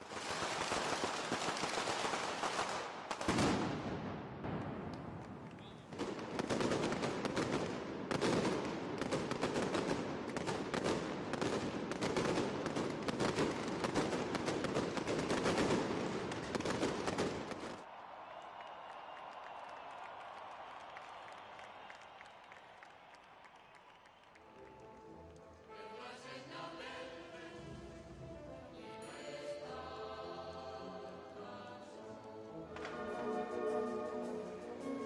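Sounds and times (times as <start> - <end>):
firecrackers rattling bangs: 0.0 - 17.8.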